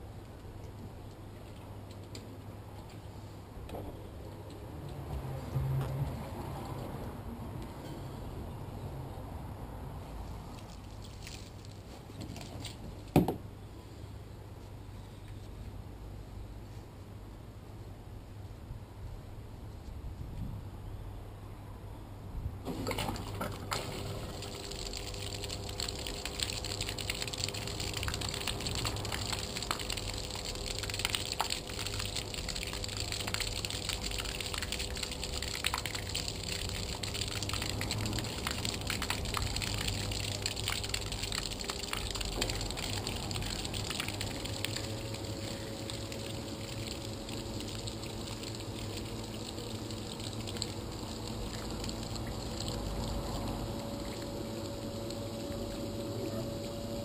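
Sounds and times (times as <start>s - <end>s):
bilge pump humming: 22.7s - 57.0s
water jet splashing: 22.7s - 57.0s.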